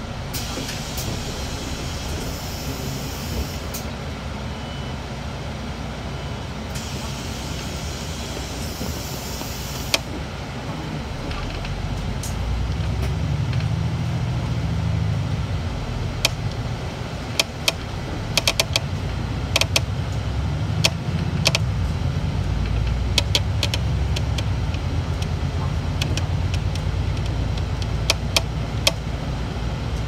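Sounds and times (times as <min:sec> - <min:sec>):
bus engine droning: 0:00.0 - 0:30.0
sharp clicks and rattles: 0:16.0 - 0:20.0, 0:20.8 - 0:29.2.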